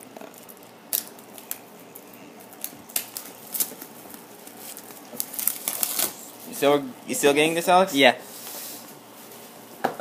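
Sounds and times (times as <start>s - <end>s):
plastic shrink wrap crinkling: 0.0s - 6.7s.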